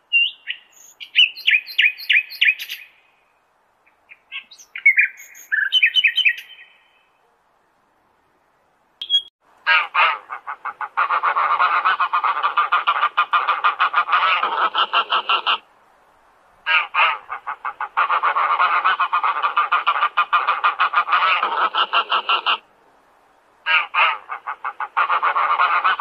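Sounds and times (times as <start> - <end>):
goose honking: 9.7 - 15.6, 16.7 - 22.6, 23.7 - 26.0.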